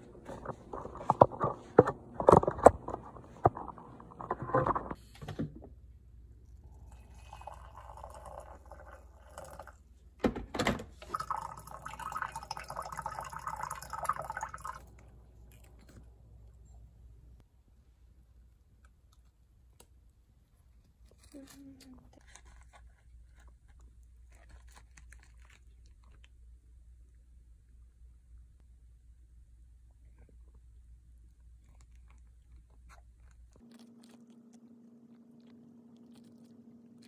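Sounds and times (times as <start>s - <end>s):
water poured from kettle into mug: 6.8s - 9.8s, 11.0s - 14.9s.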